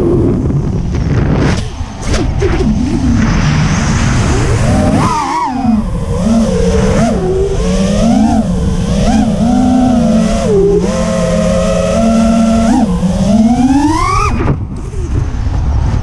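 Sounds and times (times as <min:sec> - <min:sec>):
drone propellers whining: 0:00.0 - 0:16.0
wind rush on microphone: 0:00.0 - 0:16.0.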